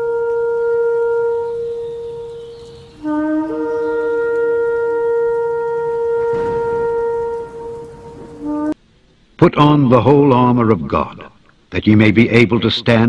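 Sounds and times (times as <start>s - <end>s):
ram's horn blasts: 0.0s - 8.8s.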